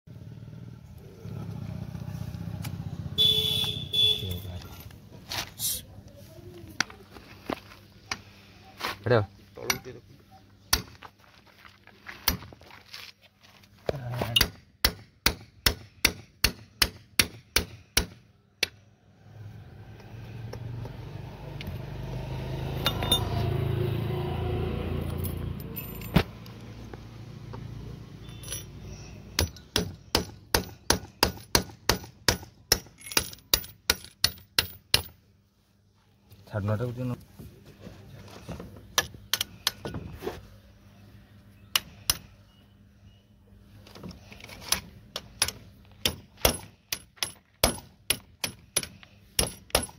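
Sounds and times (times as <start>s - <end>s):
hammer tapping steel punch: 29.4s - 35.1s.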